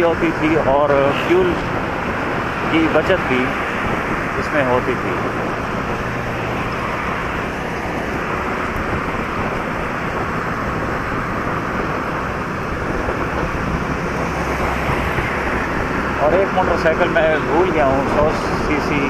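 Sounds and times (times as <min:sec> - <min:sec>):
traffic: 0:00.0 - 0:19.0
wind and road noise: 0:00.0 - 0:19.0
motorcycle engine running: 0:05.2 - 0:18.3.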